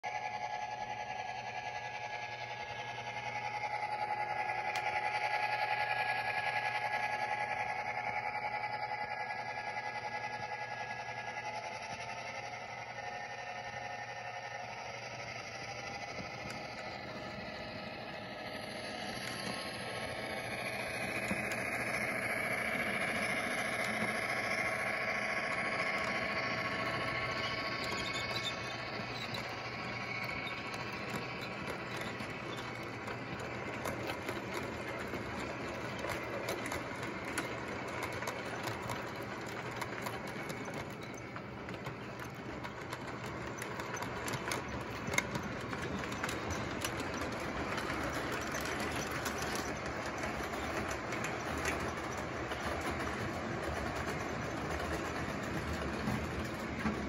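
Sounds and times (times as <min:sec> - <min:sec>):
model train rumble: 0:00.0 - 0:57.0
wheels clicking over rail joints: 0:00.1 - 0:57.0.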